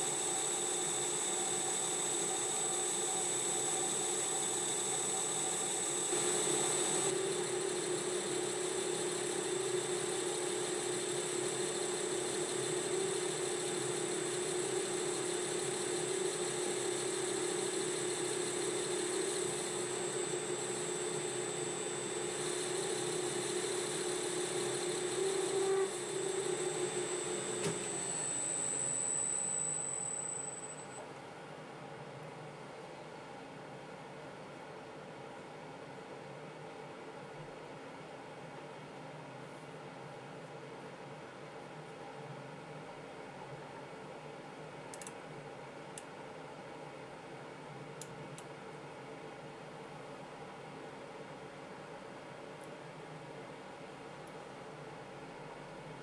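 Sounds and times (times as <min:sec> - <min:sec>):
metal lathe whining: 0:00.0 - 0:30.7.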